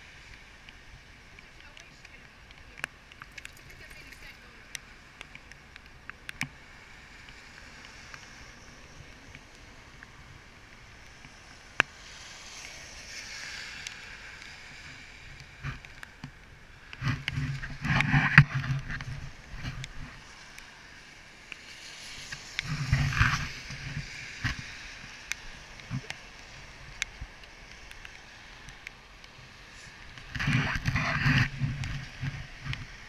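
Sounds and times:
tyre spray hiss on wet road: 0.0 - 33.0
small clicks: 1.4 - 6.6.

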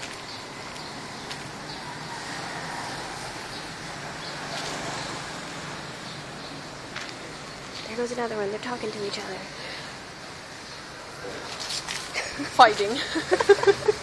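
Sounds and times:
footsteps on pavement: 0.0 - 2.4, 3.0 - 5.4, 6.3 - 9.3, 11.4 - 12.9
distant traffic hum: 0.0 - 14.0.

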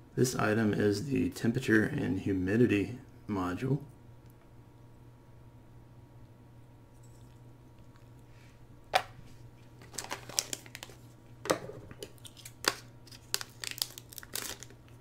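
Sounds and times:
plastic bag crinkling: 9.7 - 11.2, 12.0 - 15.0.

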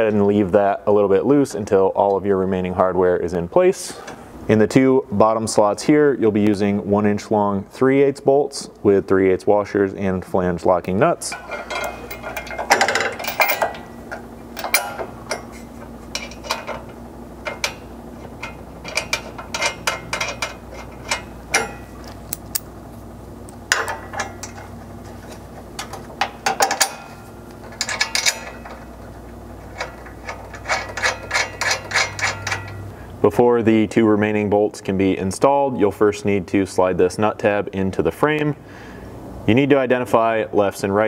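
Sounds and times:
metal bolts and nuts clinking: 11.2 - 22.7, 23.7 - 24.8, 25.8 - 32.9.

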